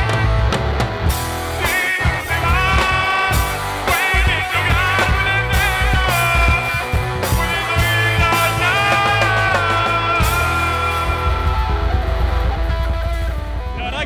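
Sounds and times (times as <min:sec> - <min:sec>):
long held melody line: 0:00.0 - 0:14.0
rock band playing: 0:00.0 - 0:14.0.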